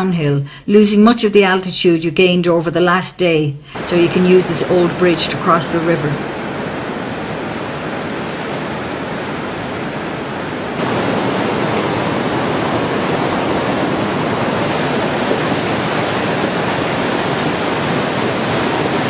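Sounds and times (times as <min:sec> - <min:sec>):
river rapids rushing over boulders: 0:03.8 - 0:19.0.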